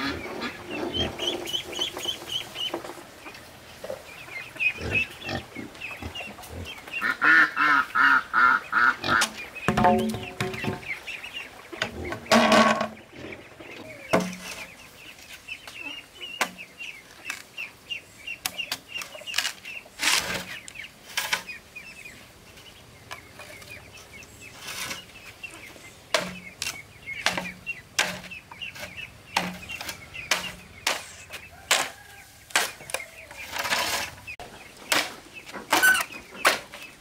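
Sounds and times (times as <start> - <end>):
chickens chirping: 0.0 - 37.0
machete chopping bamboo: 26.1 - 26.4, 27.2 - 28.3.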